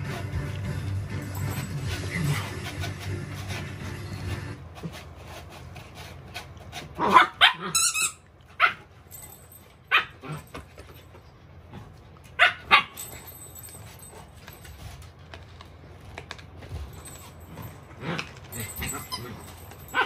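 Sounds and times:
paws scratching fabric: 0:00.0 - 0:07.4
dog barking excitedly: 0:06.9 - 0:07.8, 0:08.5 - 0:08.9, 0:09.9 - 0:10.4, 0:12.4 - 0:13.0, 0:18.7 - 0:20.0.

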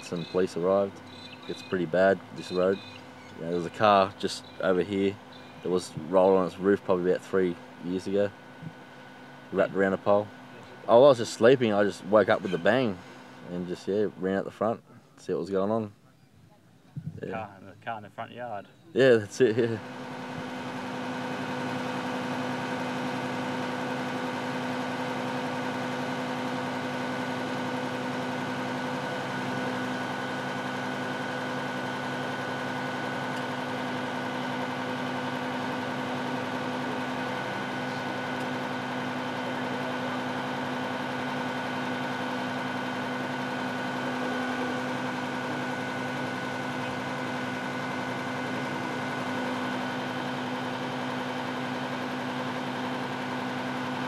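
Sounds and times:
engine idling: 0:00.0 - 0:15.0, 0:19.0 - 0:54.0.

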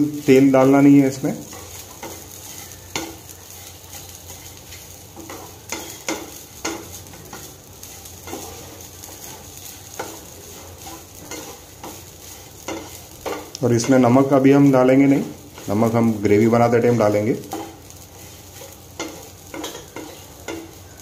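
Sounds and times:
faint hiss from pan: 0:00.0 - 0:21.0
wooden spatula scraping pan: 0:01.1 - 0:14.0, 0:17.4 - 0:20.8.

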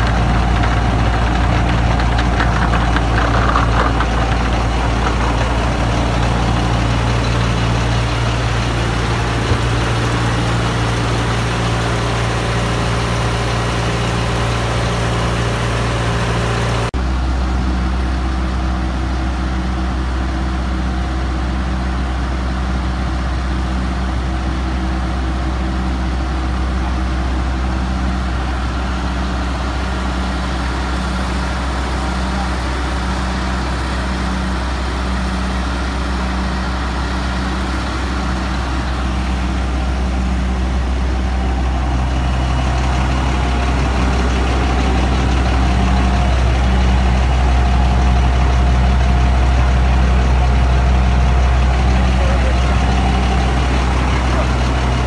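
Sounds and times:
truck engine droning: 0:00.0 - 0:55.0.

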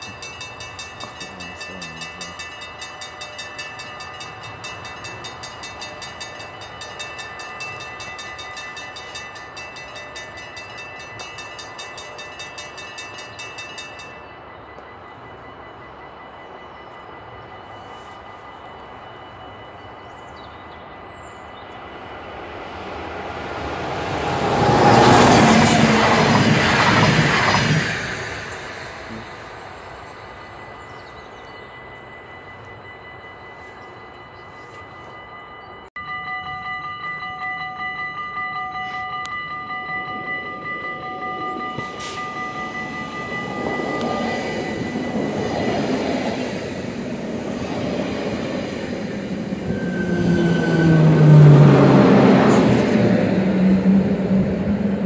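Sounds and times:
electric train passing: 0:00.0 - 0:55.0
level-crossing warning bells: 0:00.0 - 0:55.0.

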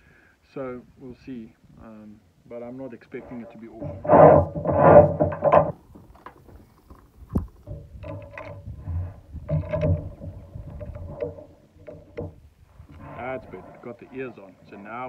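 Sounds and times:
small clicks and rustling: 0:03.8 - 0:14.0.

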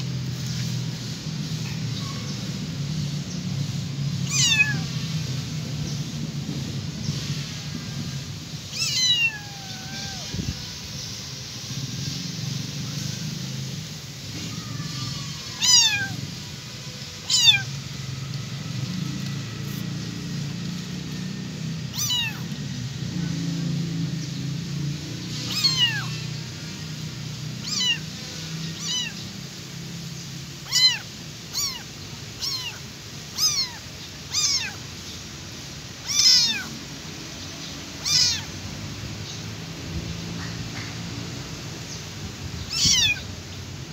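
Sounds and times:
kitten meowing: 0:04.2 - 0:05.0, 0:08.7 - 0:10.7, 0:14.4 - 0:16.4, 0:17.2 - 0:17.8, 0:21.8 - 0:22.6, 0:25.4 - 0:26.5, 0:27.4 - 0:29.3, 0:30.6 - 0:34.9, 0:36.0 - 0:36.8, 0:38.0 - 0:38.6, 0:42.6 - 0:43.4.

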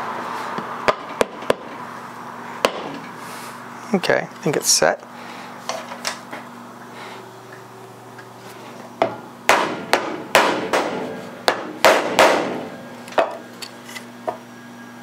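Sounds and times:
mallet striking wood: 0:02.6 - 0:03.0, 0:09.0 - 0:13.3.

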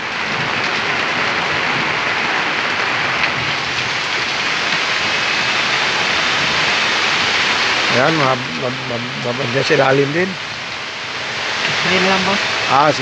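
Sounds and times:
water hissing: 0:03.6 - 0:13.0.

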